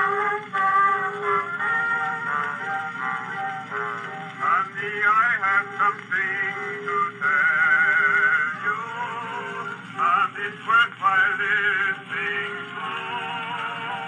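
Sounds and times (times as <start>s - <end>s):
music accompaniment: 0.0s - 14.0s
male vocal trio singing: 4.4s - 14.0s.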